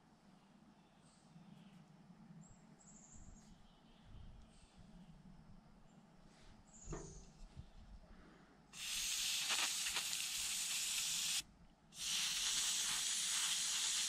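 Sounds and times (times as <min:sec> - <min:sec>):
aerosol spray hissing: 0:08.8 - 0:11.4, 0:12.0 - 0:14.0.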